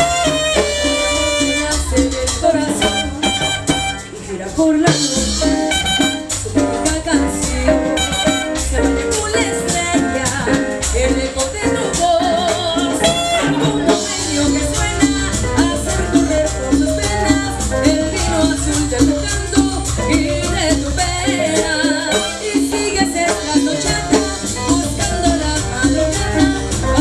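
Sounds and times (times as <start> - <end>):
horns: 0.0 - 4.5, 5.4 - 6.6, 7.8 - 8.8
hand percussion: 0.0 - 27.0
live cumbia band playing: 0.0 - 27.0.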